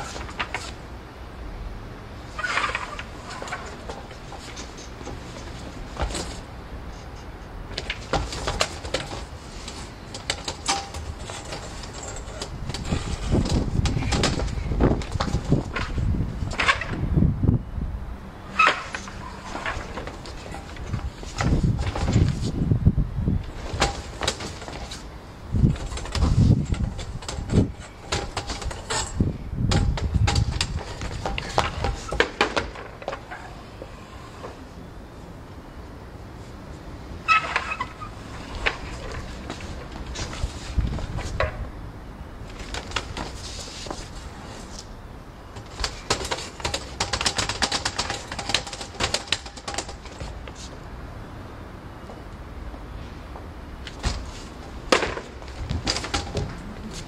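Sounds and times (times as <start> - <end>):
metal chairs and table scraping: 2.3 - 7.2, 7.8 - 16.8, 37.2 - 41.6, 42.5 - 44.8
feet striking stone paving: 7.7 - 16.9, 42.4 - 44.9, 53.8 - 57.0.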